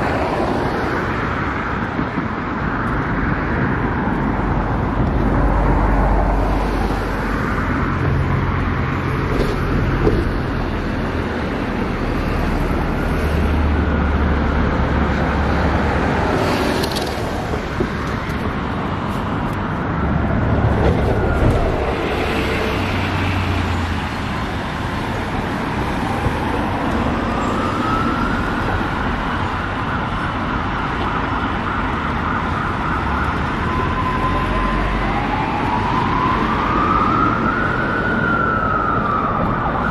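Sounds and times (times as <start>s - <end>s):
cars and buses passing: 0.0s - 39.9s
siren with rising pitch: 25.8s - 29.5s, 32.2s - 39.9s.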